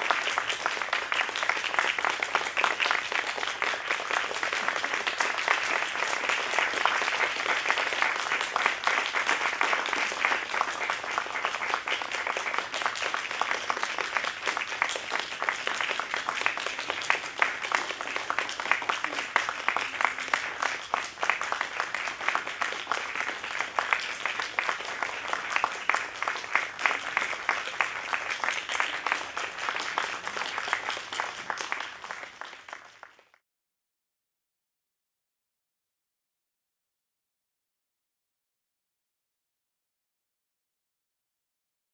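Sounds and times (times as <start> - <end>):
audience applauding: 0.0 - 33.4.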